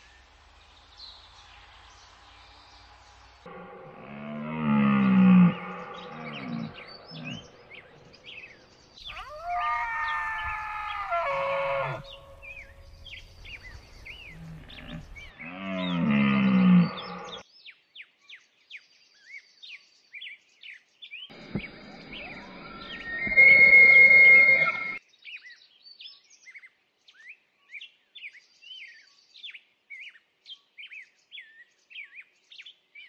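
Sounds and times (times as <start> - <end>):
small birds chirping: 4.8 - 33.0
red deer calling: 9.0 - 12.8, 22.0 - 25.0.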